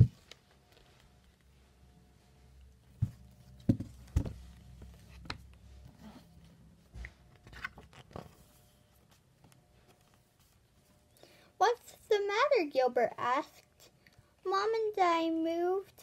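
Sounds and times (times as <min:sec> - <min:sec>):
book knocking: 0:03.0 - 0:04.4.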